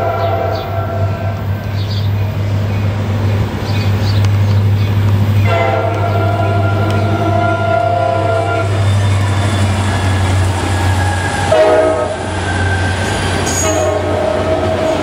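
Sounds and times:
locomotive horn: 0.0s - 1.5s, 5.4s - 15.0s
diesel locomotive engine rumble: 0.0s - 15.0s.

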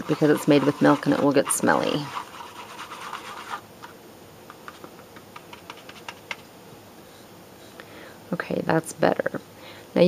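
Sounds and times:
paintbrush scratching in bowl: 0.0s - 3.6s.

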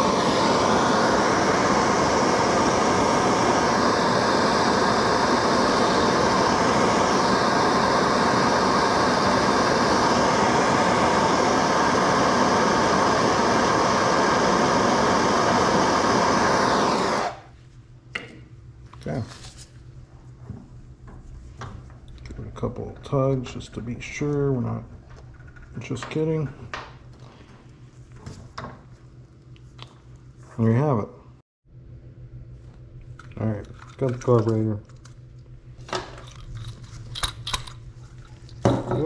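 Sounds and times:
gas torch hissing: 0.0s - 17.6s.

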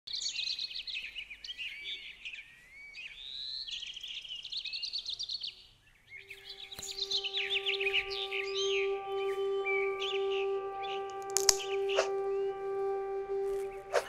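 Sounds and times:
birds chirping and trilling: 0.1s - 14.0s
low steady tone: 6.2s - 14.0s
click: 11.1s - 11.8s.

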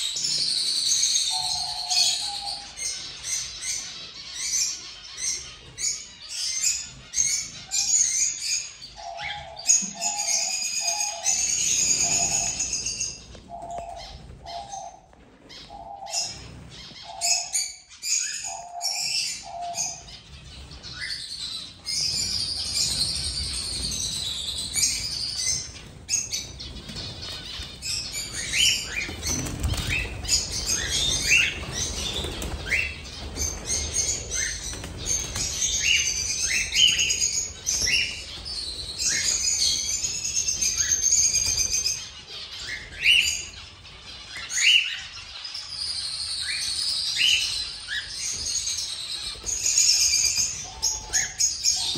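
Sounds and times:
birds chirping and calling: 0.0s - 51.9s
wings flapping: 20.3s - 43.7s.

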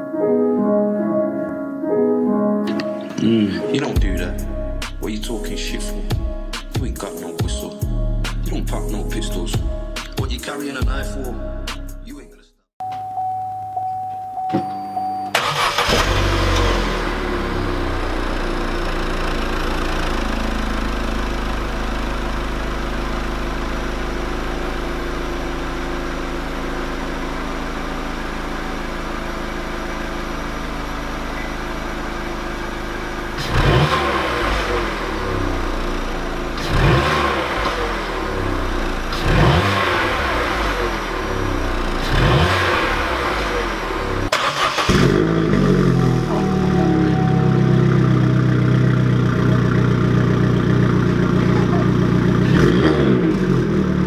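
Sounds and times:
car engine idling: 15.3s - 54.0s
car engine revving: 15.4s - 54.0s.

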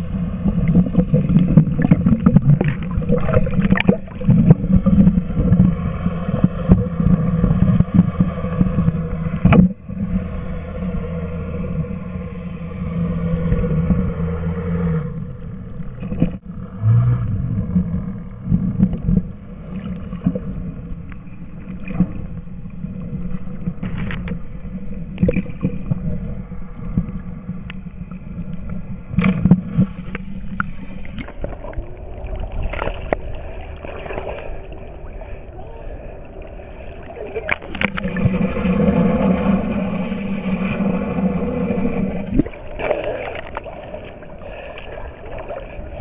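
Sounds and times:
water sloshing: 0.0s - 10.3s, 15.8s - 46.0s
muffled boat engine hum: 0.0s - 46.0s
water gurgling: 0.0s - 46.0s.

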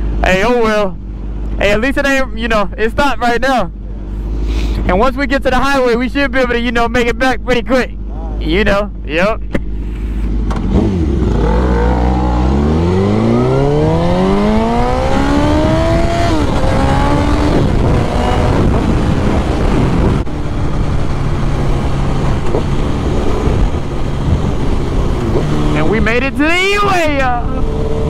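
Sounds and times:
motorcycle engine accelerating: 0.0s - 28.0s
wind noise: 10.7s - 28.0s.

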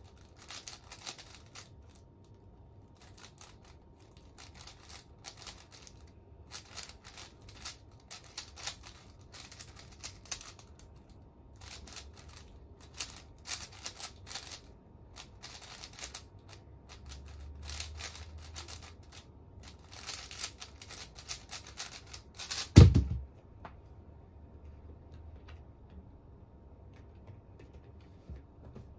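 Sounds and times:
puzzle cube clicking and rattling: 0.0s - 2.1s, 2.9s - 23.0s
thump on desk: 22.8s - 23.2s.

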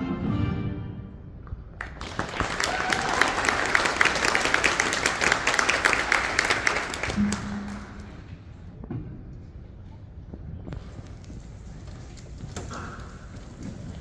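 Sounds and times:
audience applauding: 1.8s - 8.3s.

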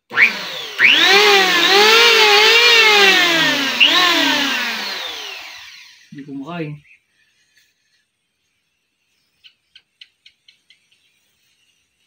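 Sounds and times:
electric hand planer motor whining: 0.0s - 6.1s.

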